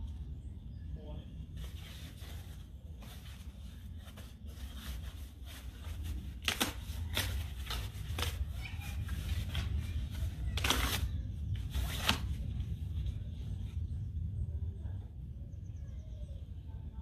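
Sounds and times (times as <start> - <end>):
cardboard rustling: 1.6 - 13.3
cardboard ripping: 4.2 - 12.5.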